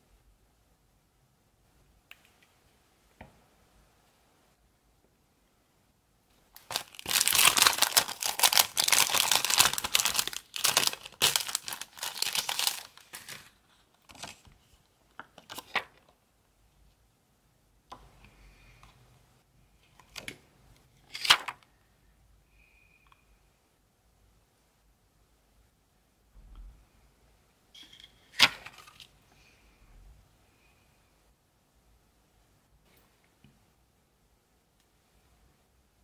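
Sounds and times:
sharp plastic crackle: 6.6s - 14.4s
plastic sheet crinkling: 6.6s - 14.5s.

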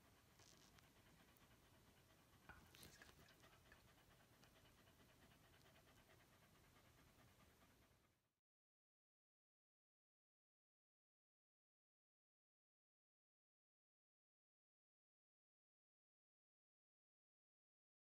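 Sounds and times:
dog panting: 0.0s - 8.4s.

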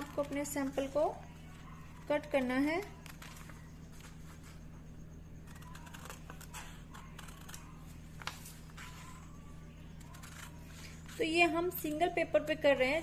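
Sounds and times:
scissors snipping paper: 0.0s - 1.1s, 1.9s - 4.1s, 5.4s - 9.2s, 9.9s - 11.4s
steady low hum: 0.0s - 13.0s
paper rustling: 5.5s - 9.2s.

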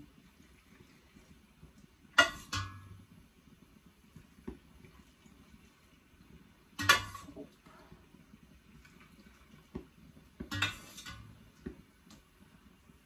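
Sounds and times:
metal ladle clinking on cookware: 2.2s - 3.0s, 6.8s - 7.4s, 10.5s - 11.3s.

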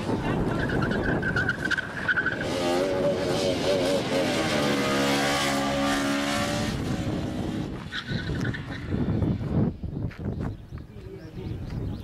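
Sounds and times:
motorcycle engine revving: 0.0s - 9.6s
motorcycle passing by: 2.4s - 9.5s.

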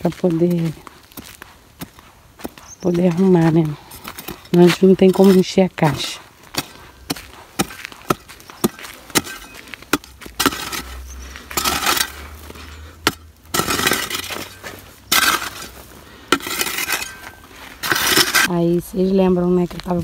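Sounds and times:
soil scraping and crumbling: 0.0s - 20.0s
hoe striking stony earth: 2.9s - 18.5s.

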